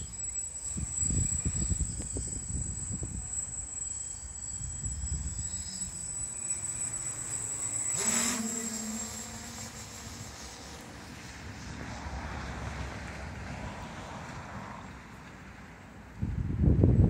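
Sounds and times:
wind rumble on microphone: 0:00.0 - 0:05.8, 0:16.1 - 0:17.0
quadcopter motors humming: 0:00.0 - 0:17.0.

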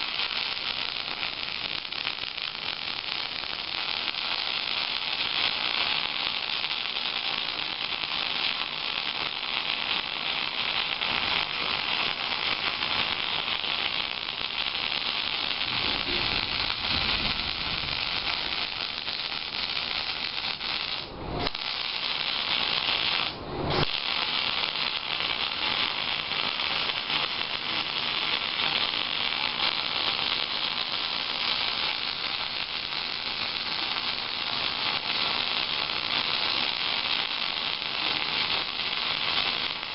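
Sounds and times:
welding arc crackling and buzzing: 0:00.0 - 0:39.9.

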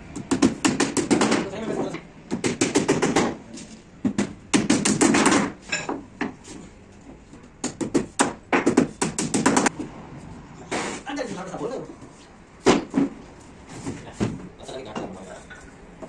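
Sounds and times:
hammer tapping on wood: 0:07.6 - 0:09.7.

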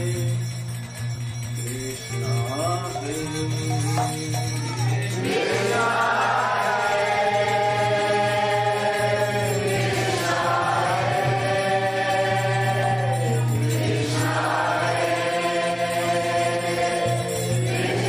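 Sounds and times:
group of voices chanting: 0:05.0 - 0:18.0.

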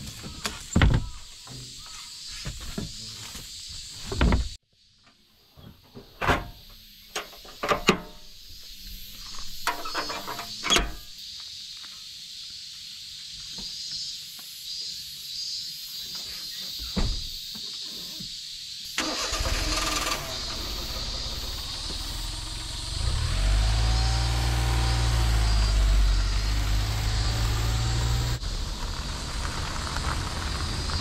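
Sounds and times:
door clunking shut: 0:17.0 - 0:17.4.

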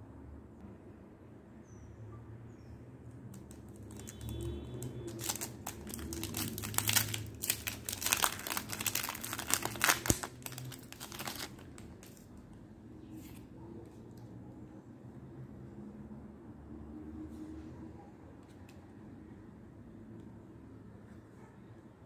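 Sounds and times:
foil wrapper tearing and crinkling: 0:03.3 - 0:12.4.

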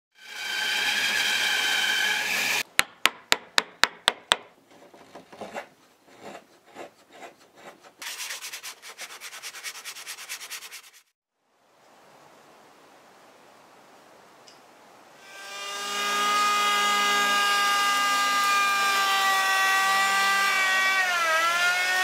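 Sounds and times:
bandsaw cutting wood: 0:00.2 - 0:02.7, 0:15.2 - 0:22.0
sharp knocks: 0:02.7 - 0:04.6
gouge scraping wood: 0:04.7 - 0:11.1
rubbing strokes on wood: 0:04.8 - 0:11.1
faint steady hiss: 0:11.4 - 0:15.2.

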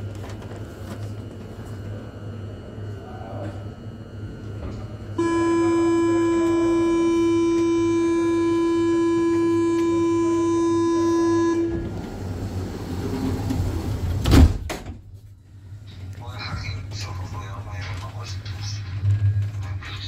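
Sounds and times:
buzzing door warning tone: 0:01.6 - 0:14.6
sliding doors thumping shut: 0:11.7 - 0:15.0.

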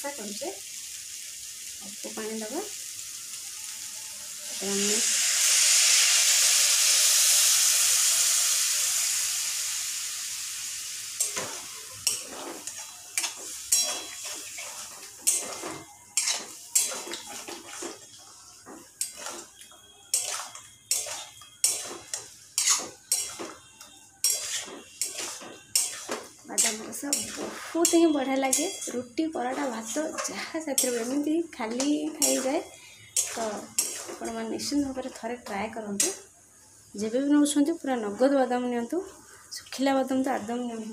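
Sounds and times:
water sizzling in hot pan: 0:00.0 - 0:40.9
metal spatula scraping a pan: 0:11.2 - 0:36.2.

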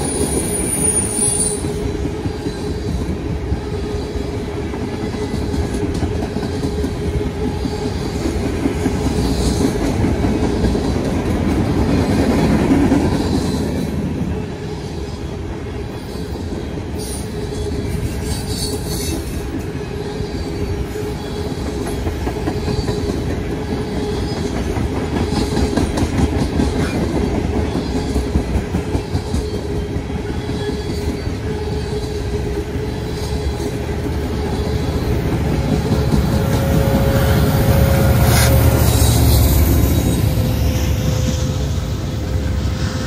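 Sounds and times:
train wheels rumbling on rail: 0:00.0 - 0:43.0
diesel locomotive rumble: 0:32.8 - 0:43.0.

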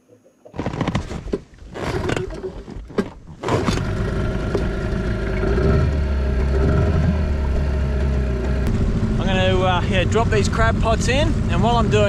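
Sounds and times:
outboard motor running: 0:03.3 - 0:12.0.

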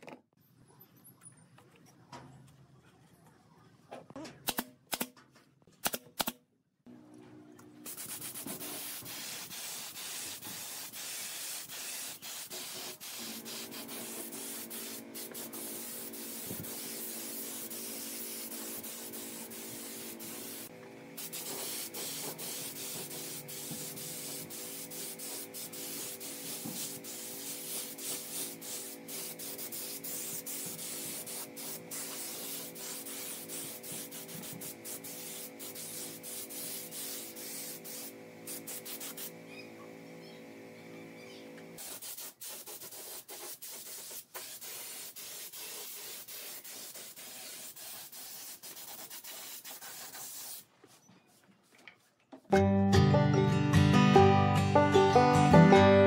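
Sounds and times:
nail gun firing into wood: 0:05.8 - 0:06.4
spray gun air hissing: 0:07.8 - 0:39.4, 0:41.8 - 0:50.6.

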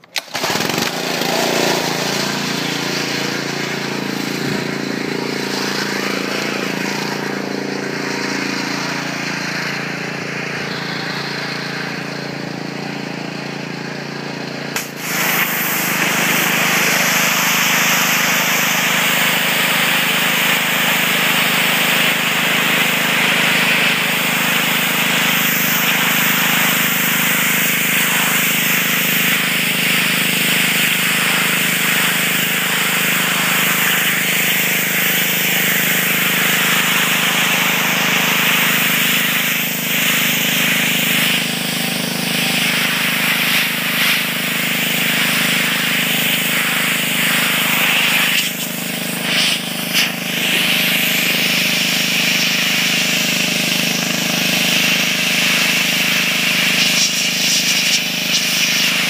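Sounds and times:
high-pressure water jet hissing: 0:00.0 - 0:12.2, 0:14.7 - 0:59.0
pressure washer humming: 0:00.0 - 0:59.0.

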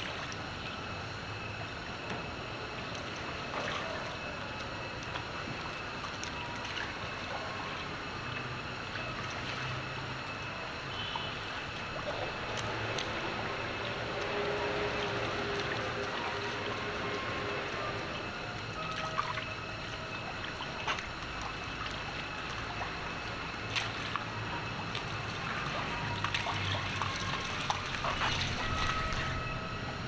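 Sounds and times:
water splashing and sloshing: 0:00.0 - 0:30.0.

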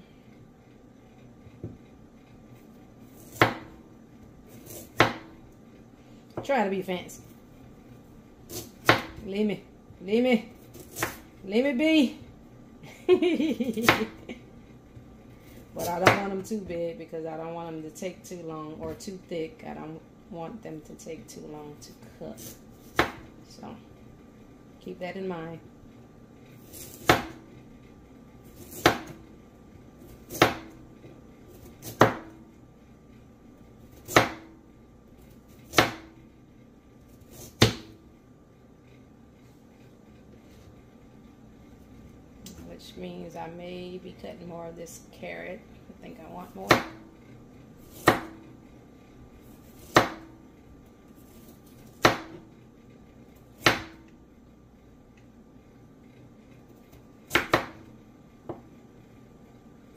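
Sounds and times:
knife slicing carrot on board: 0:03.1 - 0:03.8, 0:04.5 - 0:05.3, 0:10.7 - 0:11.2, 0:28.5 - 0:29.2, 0:31.6 - 0:32.3, 0:47.8 - 0:48.4, 0:49.6 - 0:50.3
knife chopping carrot on board: 0:03.2 - 0:03.8, 0:04.6 - 0:05.3, 0:08.5 - 0:09.2, 0:10.8 - 0:11.2, 0:15.8 - 0:16.4, 0:22.4 - 0:23.3, 0:26.7 - 0:27.4, 0:28.6 - 0:29.2, 0:30.3 - 0:30.8, 0:31.8 - 0:32.3, 0:34.0 - 0:34.5, 0:35.6 - 0:36.1, 0:37.3 - 0:37.9, 0:46.6 - 0:47.0, 0:47.9 - 0:48.4, 0:49.7 - 0:50.3, 0:51.9 - 0:52.4, 0:53.6 - 0:54.0, 0:57.3 - 0:57.9.

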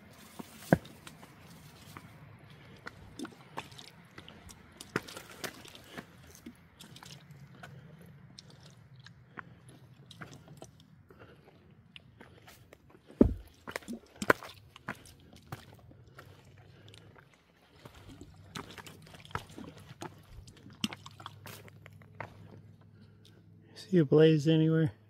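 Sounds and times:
boot footsteps on loose rock: 0:00.1 - 0:02.1, 0:12.2 - 0:15.8.

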